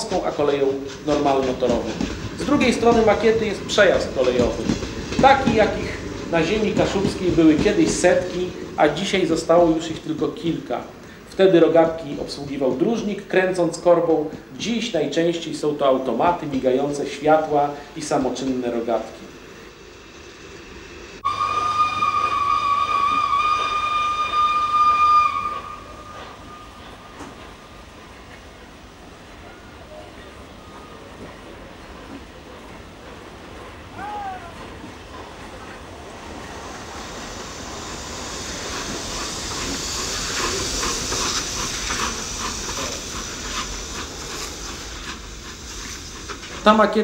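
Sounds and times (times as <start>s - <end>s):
locomotive exhaust chuffs: 0.0s - 47.0s
steam hiss: 0.0s - 47.0s
steam locomotive whistle: 21.2s - 27.2s.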